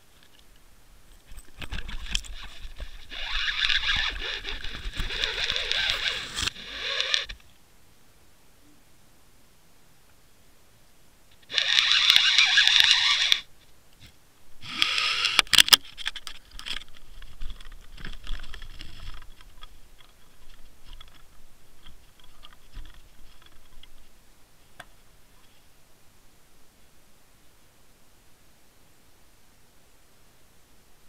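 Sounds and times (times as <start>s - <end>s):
camera housing clicks and scrapes: 14.8s - 21.2s.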